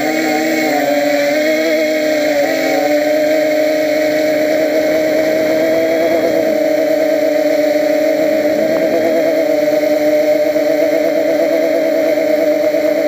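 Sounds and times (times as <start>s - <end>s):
drone propellers whirring: 0.0s - 13.0s.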